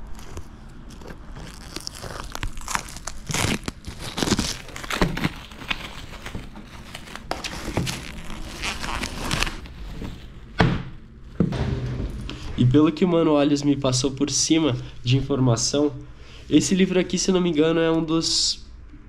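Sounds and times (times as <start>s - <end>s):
plastic wrap crinkling and tearing: 0.0s - 10.5s.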